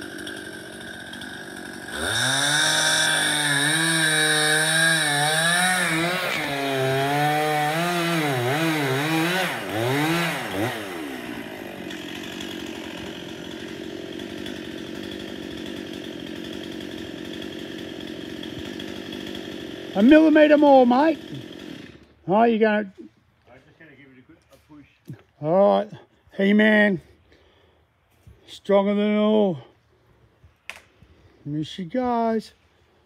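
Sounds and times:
chainsaw cutting wood: 0.0 - 22.2
chainsaw idling: 0.0 - 22.3.

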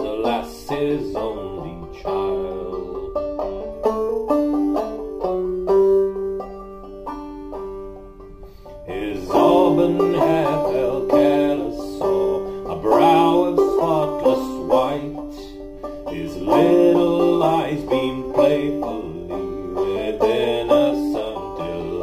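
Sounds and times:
man singing or humming: 0.0 - 4.3, 8.8 - 22.0
banjo plucking: 0.0 - 22.0.

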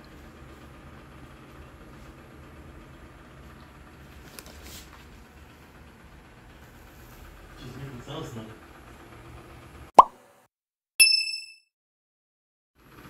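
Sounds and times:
low background hum: 0.0 - 9.9.

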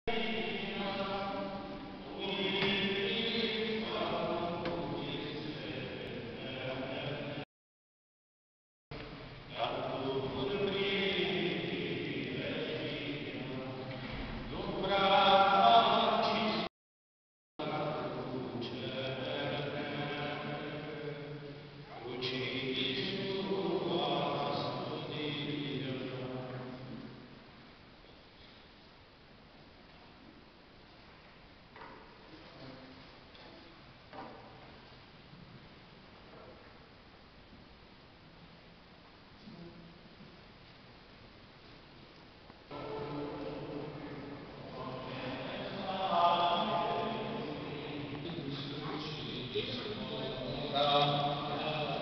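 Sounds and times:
group singing a slow chant: 0.2 - 7.4, 9.5 - 16.7, 17.6 - 26.7, 42.7 - 52.0.

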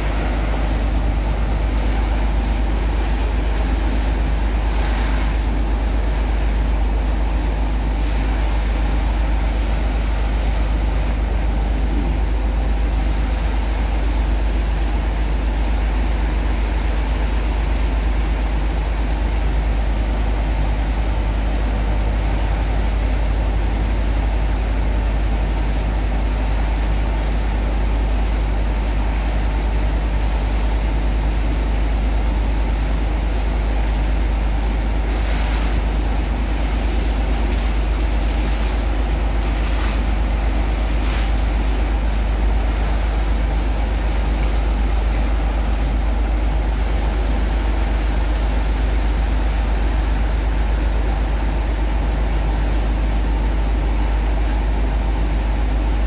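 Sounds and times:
slurry rushing through pipes: 0.0 - 54.3
pump engine drone: 0.0 - 56.0.

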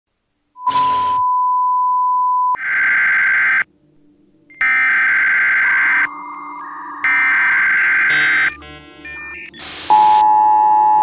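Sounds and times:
electronic test tone: 4.5 - 11.0
buzzing alert data bursts: 7.0 - 10.0.

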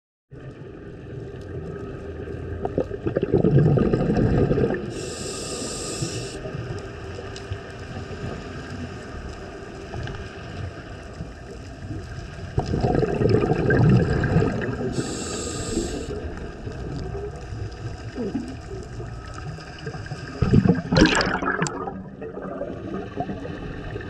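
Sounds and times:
exhaled bubbles rushing: 2.5 - 5.0, 12.5 - 15.1, 16.2 - 24.0
regulator inhalation hiss: 4.9 - 6.5, 14.9 - 16.4
low underwater rumble: 6.2 - 24.0.

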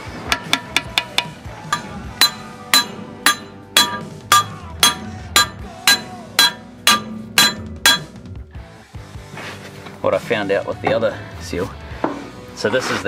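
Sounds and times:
hammer tapping on metal: 0.3 - 8.3.

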